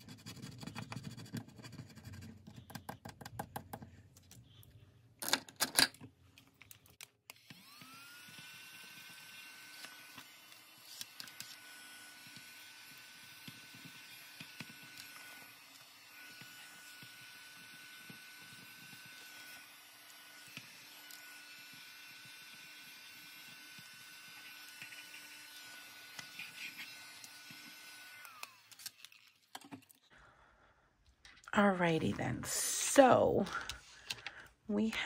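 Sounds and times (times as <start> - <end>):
scratching scratch-off cards: 0.0 - 3.7, 8.3 - 29.5
mini vacuum motor whining: 7.3 - 29.4.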